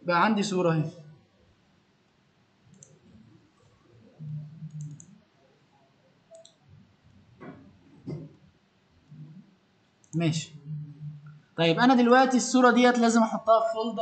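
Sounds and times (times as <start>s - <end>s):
soft thumps: 7.4s - 8.4s.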